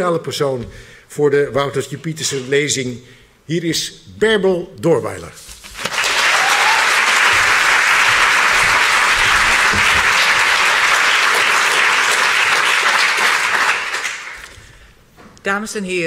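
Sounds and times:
audience applauding: 0:05.8 - 0:14.7.

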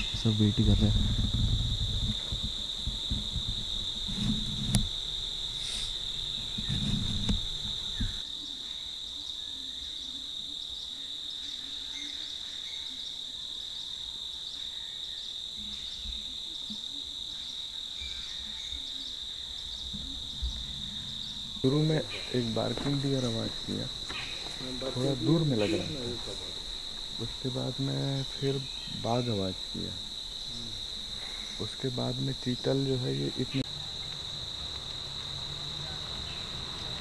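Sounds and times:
low rumbling: 0:00.0 - 0:08.2
crickets droning: 0:00.0 - 0:37.0.

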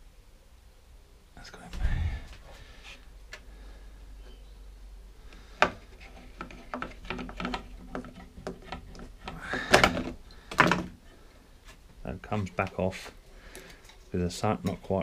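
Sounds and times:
hands handling engine parts: 0:05.6 - 0:14.9.

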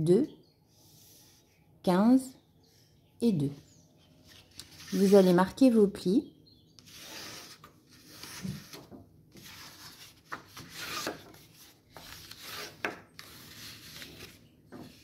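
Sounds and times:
paper being folded and rubbed: 0:04.3 - 0:05.4, 0:06.9 - 0:15.0.

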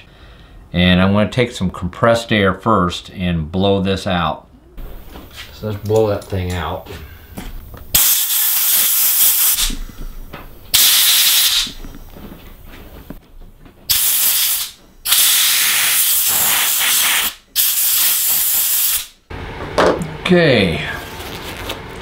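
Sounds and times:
compressed air blasts hissing: 0:07.0 - 0:11.9, 0:13.9 - 0:19.2.

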